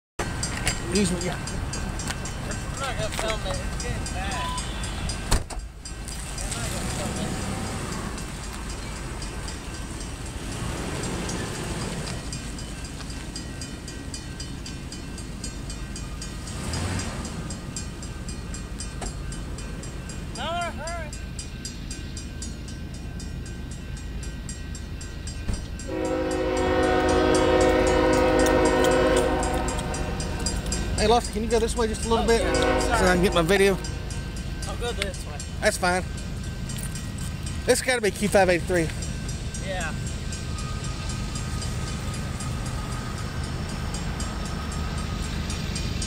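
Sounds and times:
rapid regular ticking of wheels: 0:00.2 - 0:46.0
train rumbling: 0:00.2 - 0:46.0
locomotive air horn chord: 0:04.5 - 0:05.3, 0:25.9 - 0:30.6, 0:32.3 - 0:34.1.

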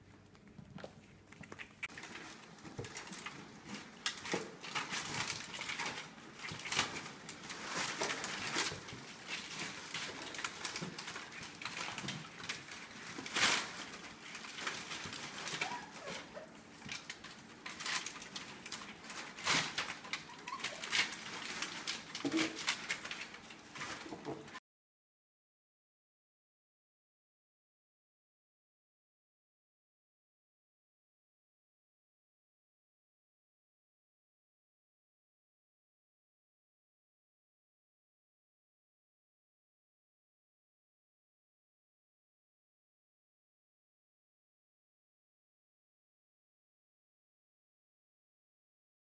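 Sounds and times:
puppies rustling plastic and cardboard: 0:00.0 - 0:24.6.

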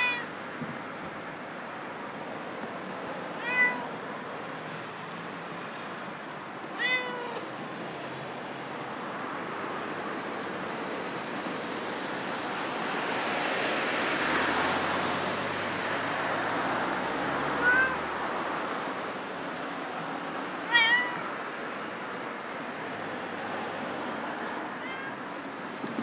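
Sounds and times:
cat meowing: 0:00.0 - 0:00.3, 0:03.4 - 0:04.0, 0:06.7 - 0:07.5, 0:17.5 - 0:18.2, 0:20.6 - 0:21.4, 0:24.4 - 0:25.3.

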